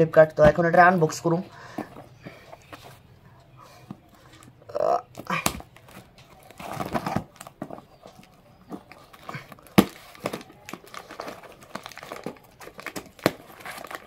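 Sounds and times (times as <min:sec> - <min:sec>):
packing tape tearing: 0:05.3 - 0:07.6, 0:08.9 - 0:14.0
cardboard crinkling and scraping: 0:05.6 - 0:14.0.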